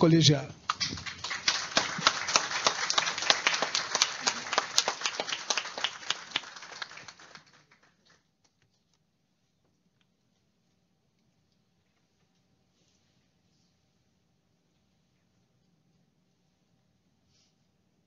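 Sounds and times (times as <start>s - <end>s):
audience applauding: 0.6s - 8.3s.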